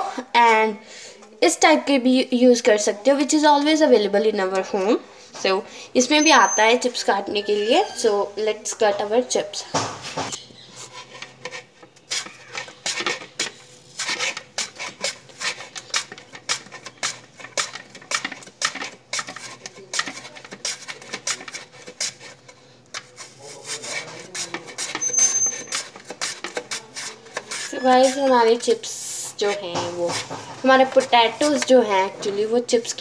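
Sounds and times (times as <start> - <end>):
potato rasping on metal slicer: 10.6 - 33.0.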